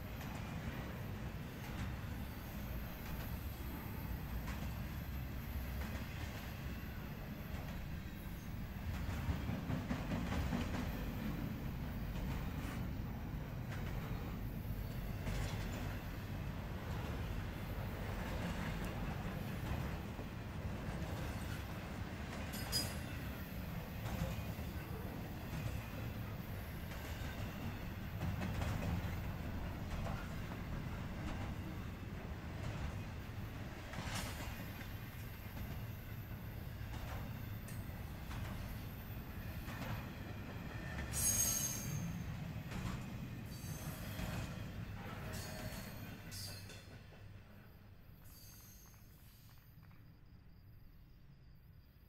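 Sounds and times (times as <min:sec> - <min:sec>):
train clicks and knocks: 0:00.0 - 0:50.4
freight train wheels rumbling: 0:00.0 - 0:50.9
wheels clicking over rail joints: 0:18.2 - 0:26.2.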